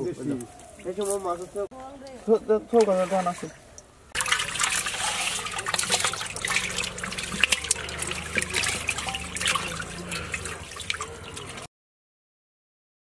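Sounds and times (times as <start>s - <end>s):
water splashing and dripping: 0.3s - 11.7s
moving water wash: 2.8s - 11.7s.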